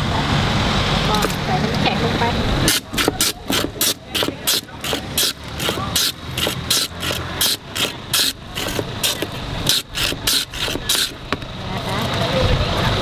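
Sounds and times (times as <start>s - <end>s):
ice rasping over a shaving blade: 2.7s - 11.4s.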